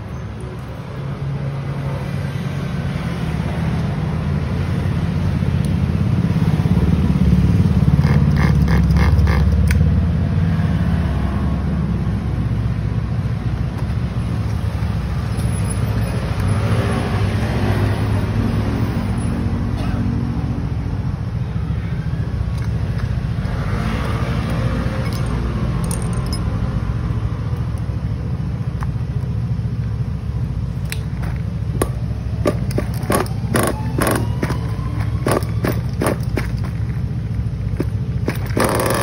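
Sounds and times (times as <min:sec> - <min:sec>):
model truck nitro engine idling: 0:38.2 - 0:39.0.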